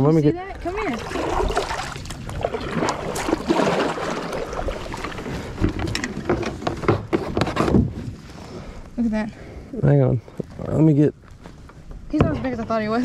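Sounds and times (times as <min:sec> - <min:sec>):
water splashing and sloshing: 0:00.1 - 0:08.9.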